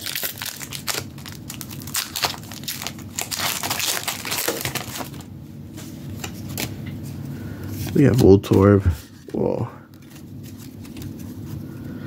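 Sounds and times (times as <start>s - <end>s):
foil wrapper crinkling: 0.0s - 5.3s.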